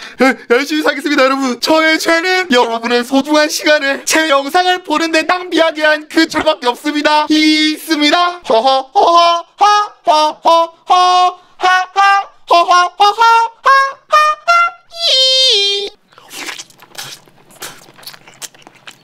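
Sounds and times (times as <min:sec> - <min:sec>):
auto-tuned man's voice: 0:00.2 - 0:07.4
wet chewing and biting: 0:16.1 - 0:19.0.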